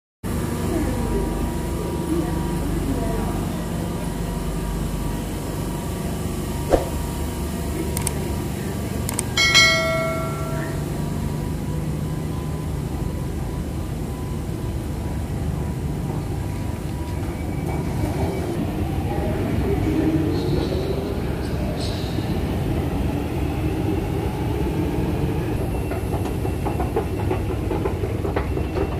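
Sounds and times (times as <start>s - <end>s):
low rumble of train: 0.2s - 28.9s
sharp click: 6.7s - 7.0s
ringing chime: 9.4s - 11.2s.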